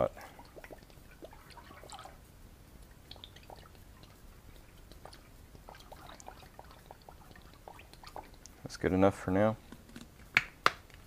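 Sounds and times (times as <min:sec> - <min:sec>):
liquid pouring and splashing: 0:00.0 - 0:02.2, 0:02.9 - 0:08.6
small ticks: 0:02.8 - 0:08.6.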